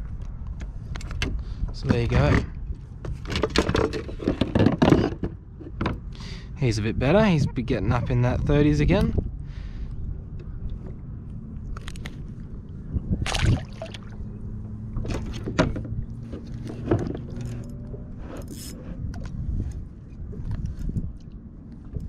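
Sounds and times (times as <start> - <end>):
steady low rumble: 5.4 - 22.0.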